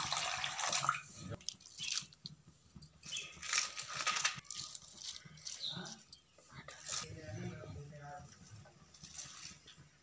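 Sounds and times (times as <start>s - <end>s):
water pouring into steel pan: 0.0s - 1.1s
cabbage rustling and crackling in pan: 1.3s - 7.3s, 8.3s - 10.0s.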